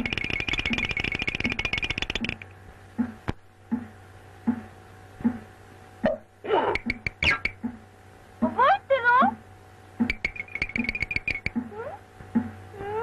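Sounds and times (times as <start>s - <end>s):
fast rattle: 0.0s - 2.6s
soft low thumps: 2.7s - 6.2s, 6.8s - 8.6s, 10.0s - 13.0s.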